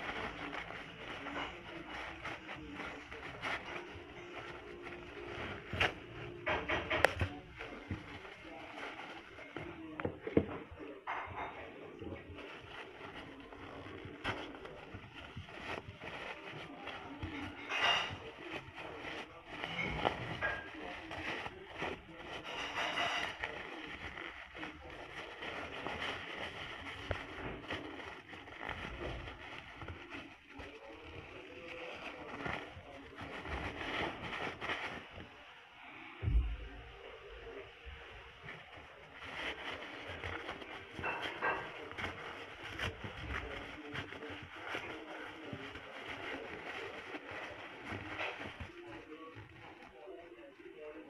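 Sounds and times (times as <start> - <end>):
tissue paper rustling and tearing: 0.0 - 36.6, 37.2 - 51.0.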